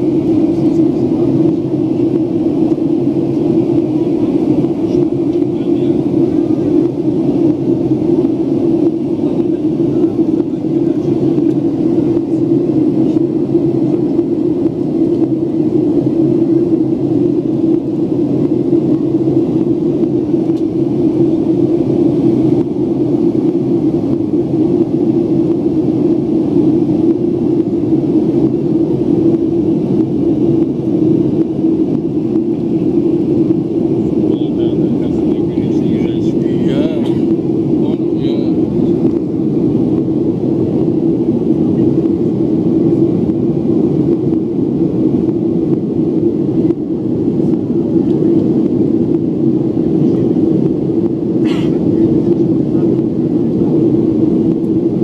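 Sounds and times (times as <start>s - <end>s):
jet airliner cabin drone: 0.0s - 55.0s.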